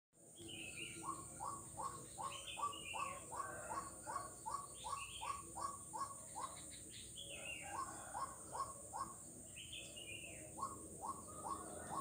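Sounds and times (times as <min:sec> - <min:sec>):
higher chirping calls: 0:00.5 - 0:12.0
frog calling: 0:00.8 - 0:09.3, 0:09.9 - 0:12.0.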